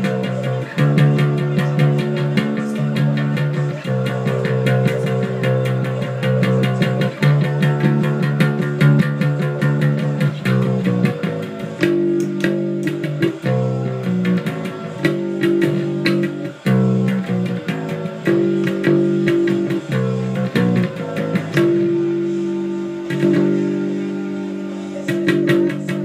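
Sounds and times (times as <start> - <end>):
electric bass punk riff: 0.0 - 26.0.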